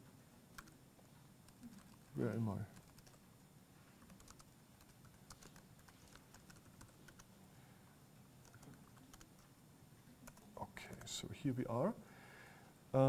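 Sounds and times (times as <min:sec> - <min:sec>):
typing on laptop keyboard: 0:00.5 - 0:00.8, 0:01.4 - 0:03.2, 0:04.0 - 0:07.3, 0:08.4 - 0:09.5, 0:10.2 - 0:11.2.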